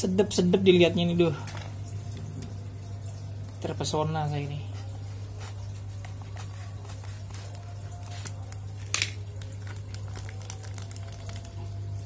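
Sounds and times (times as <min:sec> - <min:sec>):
plastic bag crinkling: 0:04.8 - 0:12.0.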